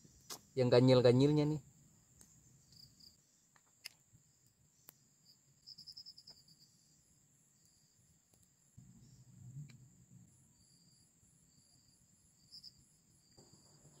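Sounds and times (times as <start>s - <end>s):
crickets chirping: 0.0s - 14.0s
high-pitched insect drone: 10.5s - 14.0s.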